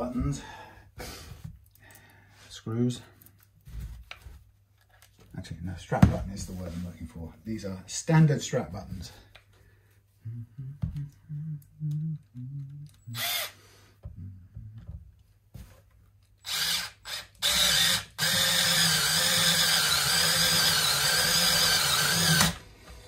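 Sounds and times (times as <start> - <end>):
cordless screwdriver motor: 13.1 - 13.5, 16.4 - 22.6.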